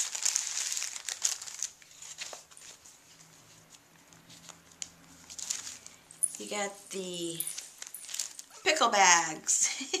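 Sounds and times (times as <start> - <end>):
paper bags crinkling: 0.0 - 3.3, 4.4 - 8.6.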